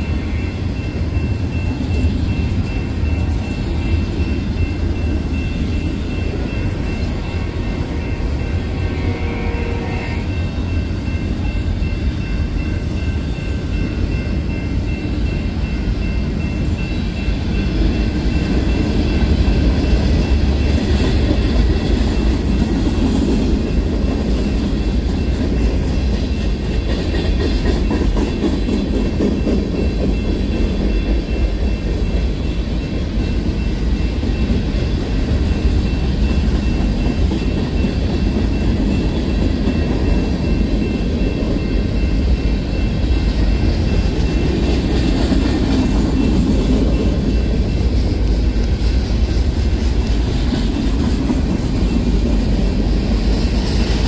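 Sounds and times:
train wheels rumbling on rail: 0.0s - 54.0s.

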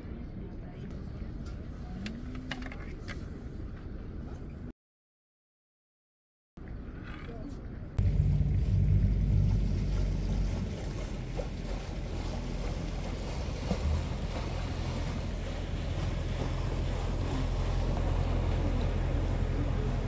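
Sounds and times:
wind: 0.0s - 4.7s, 6.6s - 20.0s
ship engine drone: 8.0s - 20.0s
water noise: 8.0s - 20.0s.

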